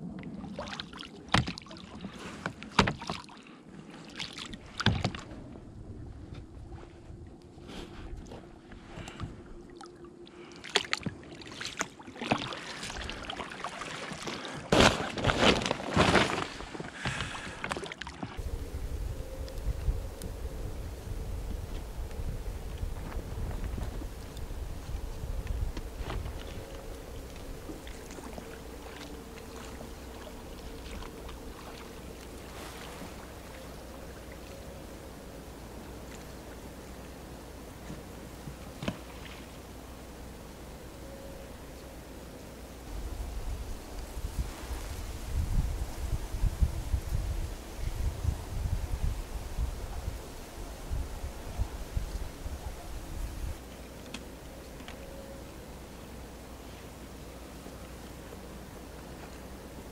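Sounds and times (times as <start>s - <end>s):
faint steady hum: 0.0s - 14.5s, 16.4s - 59.9s
oar paddling and splashing: 0.0s - 40.4s.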